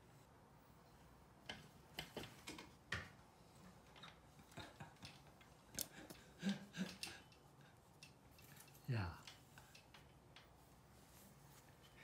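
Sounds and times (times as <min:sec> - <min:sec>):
faint clicks and taps: 0:01.4 - 0:10.8.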